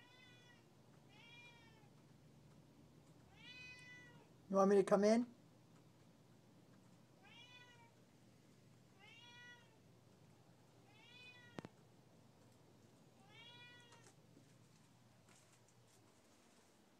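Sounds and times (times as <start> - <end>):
cat meowing: 0.0 - 2.0, 3.3 - 4.3, 7.2 - 8.0, 9.0 - 9.8, 10.8 - 11.7, 13.2 - 14.2.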